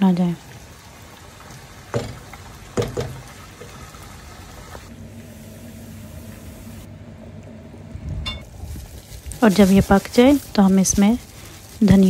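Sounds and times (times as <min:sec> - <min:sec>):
curry bubbling in a pot: 0:00.4 - 0:04.9
wooden spoon knocking on pot: 0:01.9 - 0:03.3.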